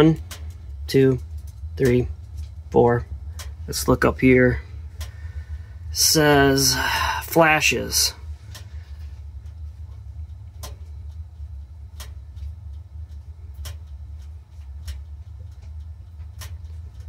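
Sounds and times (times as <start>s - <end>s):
gas burner rumbling: 0.0s - 17.0s
sharp ticks: 10.2s - 17.0s.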